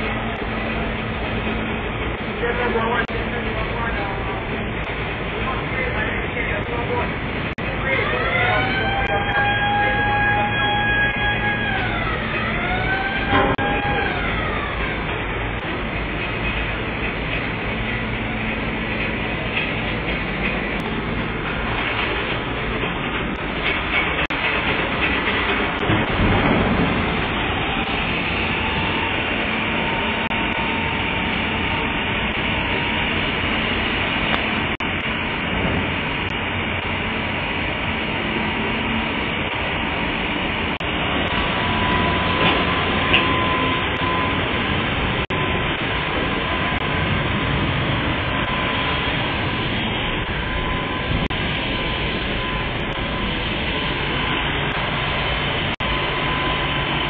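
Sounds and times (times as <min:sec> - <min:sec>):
machinery drone and hiss: 0:00.0 - 0:57.0
faint high whine: 0:37.8 - 0:57.0.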